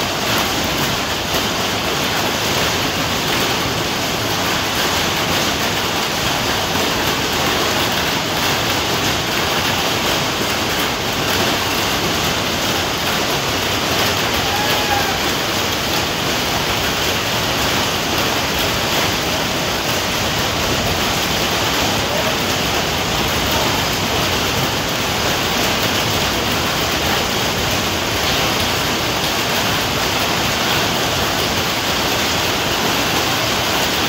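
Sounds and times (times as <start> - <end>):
hailstones pelting: 0.0 - 34.0.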